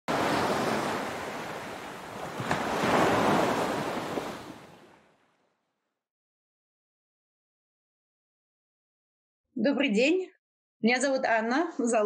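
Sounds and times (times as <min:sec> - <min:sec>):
ocean waves breaking: 0:00.0 - 0:05.5.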